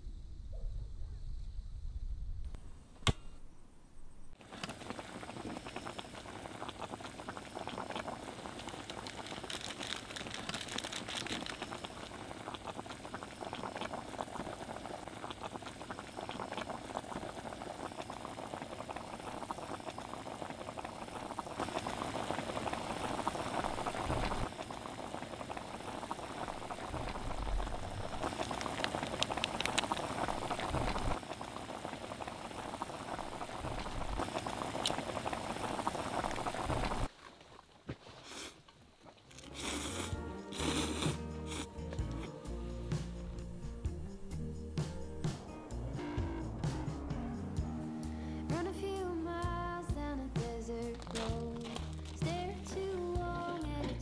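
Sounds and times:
water bubbling at a boil: 4.4s - 37.1s.

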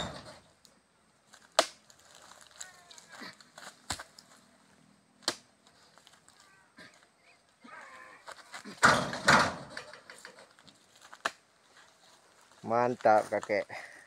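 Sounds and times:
heavy thud with rustling: 8.8s - 9.9s.

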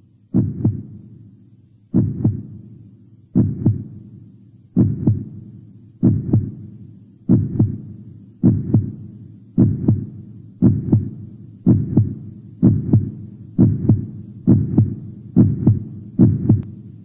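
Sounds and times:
heartbeat: 0.3s - 1.0s, 1.9s - 2.6s, 3.4s - 4.0s, 4.8s - 5.4s, 6.0s - 6.7s, 7.3s - 16.8s.

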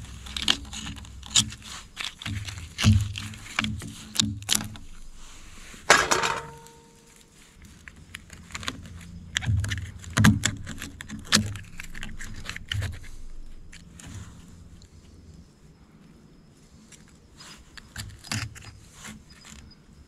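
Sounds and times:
knife scraping shells: 0.0s - 7.1s
oyster shells cracking: 0.1s - 5.1s, 8.1s - 13.9s.

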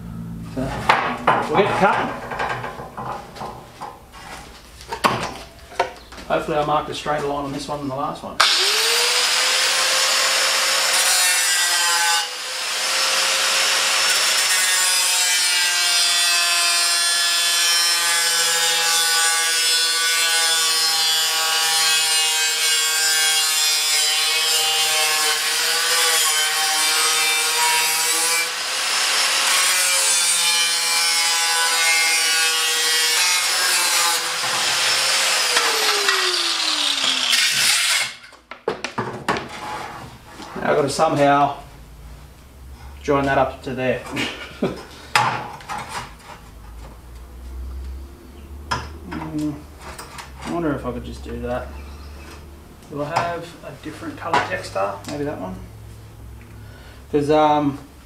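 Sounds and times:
angle grinder cutting steel: 8.4s - 38.3s.

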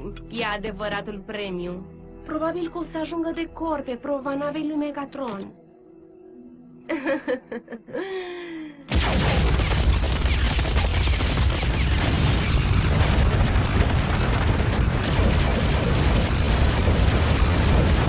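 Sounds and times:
explosion with heavy rumble: 8.9s - 18.0s.

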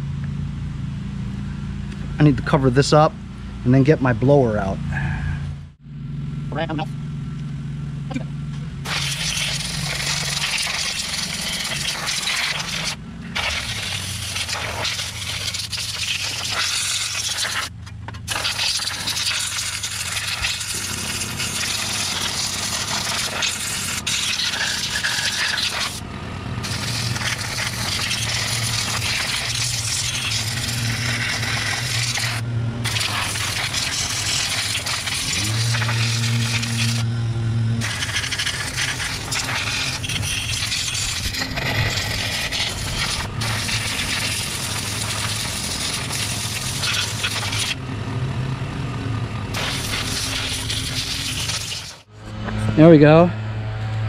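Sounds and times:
low steady hum: 0.0s - 16.0s, 26.0s - 43.8s
compressed air hissing: 8.8s - 26.0s, 26.6s - 37.1s, 37.8s - 47.8s, 49.5s - 52.1s.

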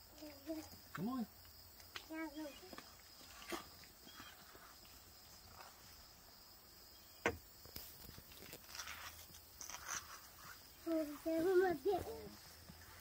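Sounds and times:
high insect drone: 0.0s - 13.0s
toddler footsteps scuffing: 1.8s - 5.9s, 7.7s - 13.0s.

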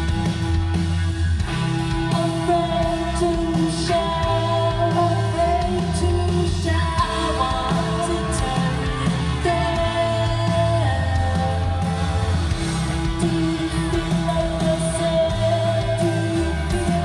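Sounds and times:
live rock band playing: 0.0s - 17.0s
person singing: 1.9s - 17.0s.

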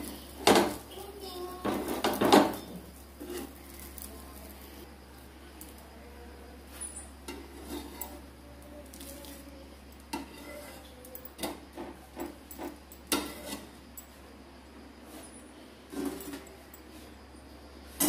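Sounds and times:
spatula scraping a pan: 3.2s - 3.6s, 7.3s - 8.2s, 10.1s - 11.8s, 13.1s - 13.8s, 15.9s - 16.4s.

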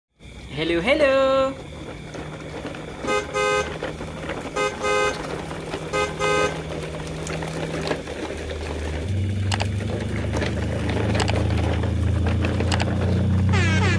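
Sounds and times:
steady low hum: 0.2s - 13.9s
horn honking in double toots: 3.0s - 6.7s, 13.4s - 13.9s.

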